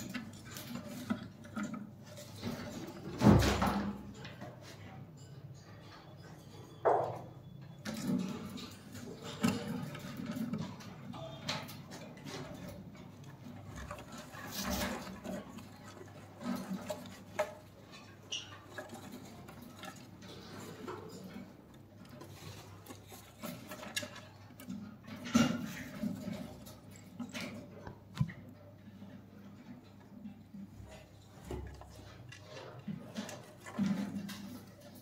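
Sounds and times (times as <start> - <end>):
parrots scratching in wooden box: 12.2 - 27.5.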